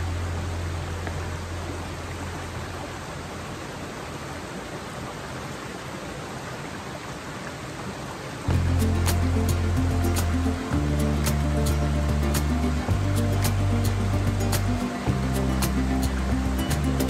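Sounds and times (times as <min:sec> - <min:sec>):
creek flowing over stones: 0:00.0 - 0:17.0
background music: 0:08.5 - 0:17.0.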